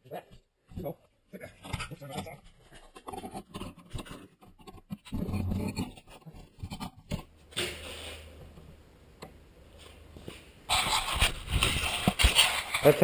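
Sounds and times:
handling knocks and scrapes: 9.8 - 13.0.

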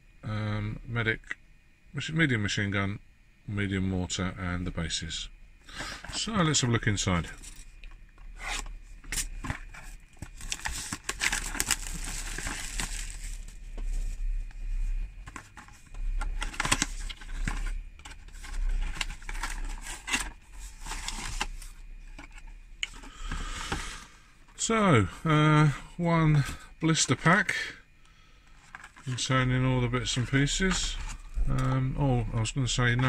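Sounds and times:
cardboard and plastic rustling: 5.7 - 24.6, 28.5 - 33.0.

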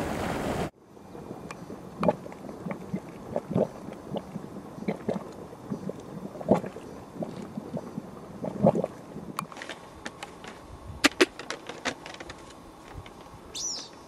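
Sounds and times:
vent bubbling with plops: 1.1 - 9.5.

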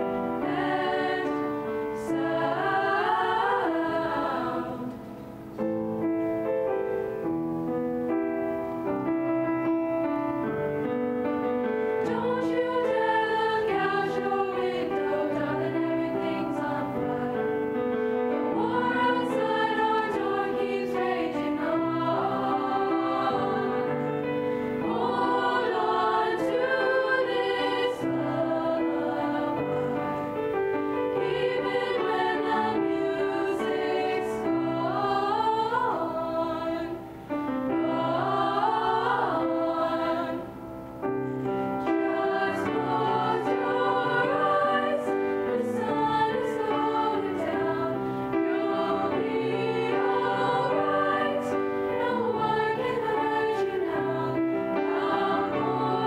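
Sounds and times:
children's chorus singing: 0.0 - 5.0, 12.0 - 17.7, 18.5 - 24.2, 24.8 - 30.2, 31.0 - 37.1, 37.7 - 40.6, 41.9 - 56.0
grand piano accompaniment: 0.0 - 56.0.

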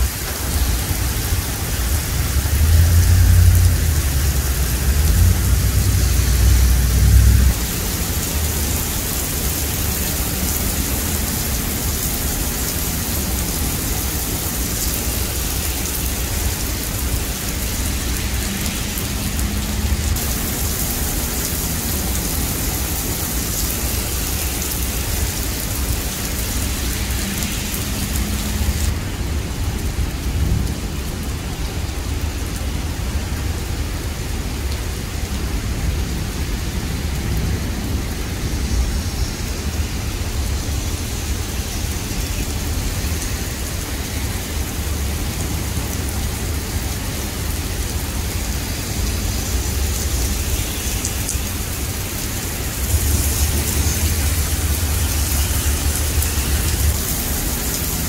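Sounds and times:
heavy rain on wet road: 0.0 - 58.0
low rumble: 0.6 - 7.8, 52.7 - 58.0.

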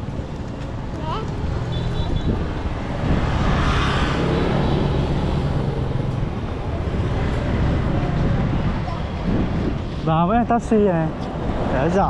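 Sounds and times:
vehicle engines running: 0.0 - 12.0
vehicle passing close: 2.4 - 9.8.

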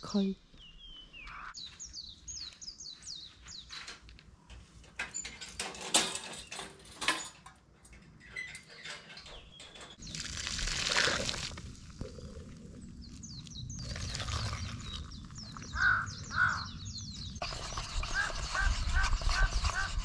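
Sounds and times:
bird chirping: 0.1 - 3.9, 12.0 - 19.9.

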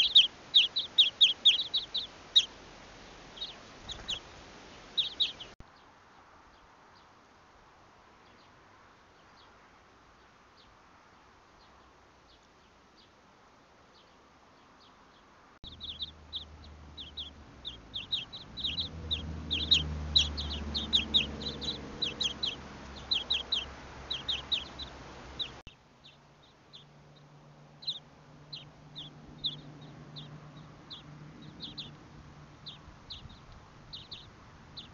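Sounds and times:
small songbirds chirping: 0.0 - 34.9
low hum: 15.6 - 25.7.

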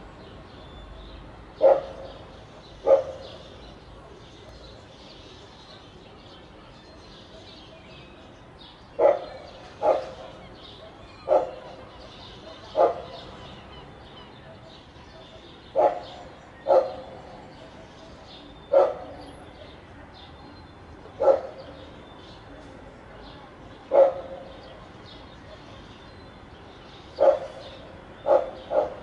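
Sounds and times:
dog barking: 1.6 - 2.2, 2.8 - 3.4, 9.0 - 13.4, 15.1 - 17.4, 18.7 - 19.3, 21.2 - 21.8, 23.9 - 24.7, 27.2 - 29.0.

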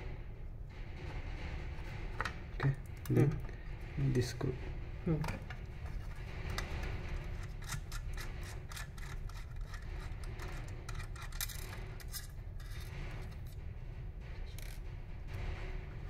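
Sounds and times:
steady low hum: 0.0 - 16.0
metal screw clicks and scrapes: 5.8 - 13.6, 14.4 - 14.9.

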